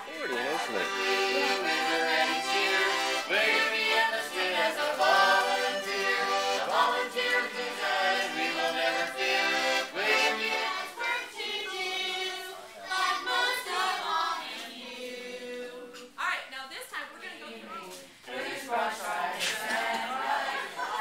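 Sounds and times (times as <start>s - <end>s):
accordion playing a tune: 0.0s - 12.3s
group singing along: 0.0s - 16.2s, 17.5s - 21.0s.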